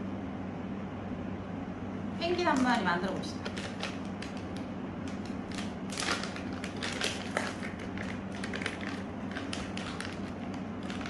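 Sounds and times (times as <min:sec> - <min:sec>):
steady low hum: 0:00.0 - 0:11.0
plastic pouch crinkling: 0:03.4 - 0:11.0.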